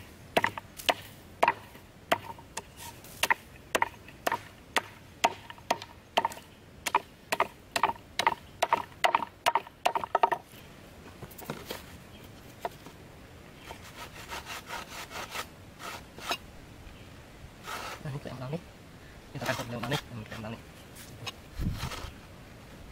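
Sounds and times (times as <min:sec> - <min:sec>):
hatchet chopping wood: 0:00.4 - 0:10.4
wooden knocks and scraping: 0:07.4 - 0:10.5, 0:11.1 - 0:11.9, 0:21.1 - 0:22.2.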